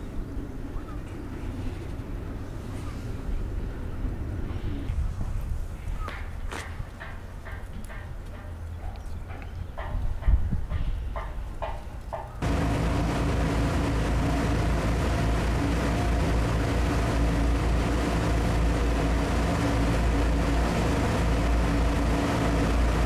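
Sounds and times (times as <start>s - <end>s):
wind: 0.0s - 23.0s
ferry engine droning: 12.4s - 23.0s
rushing water wash: 12.4s - 23.0s.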